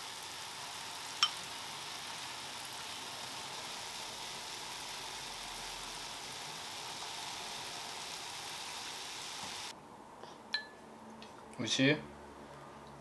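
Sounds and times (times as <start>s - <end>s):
broth boiling in a pot: 0.0s - 9.8s.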